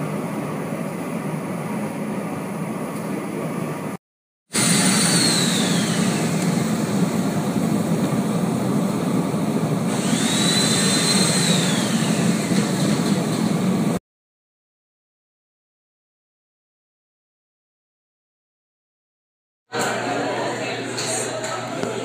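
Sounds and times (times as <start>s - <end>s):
steam rushing: 4.5s - 14.0s
high whistling tone: 10.0s - 12.3s.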